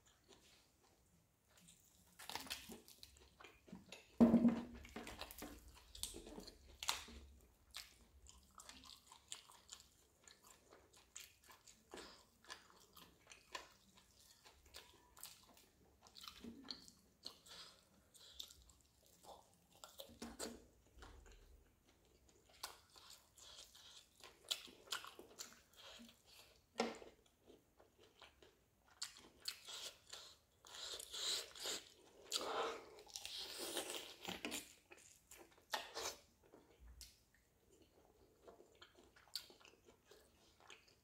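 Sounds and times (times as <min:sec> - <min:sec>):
person chewing and biting: 0:22.4 - 0:37.2.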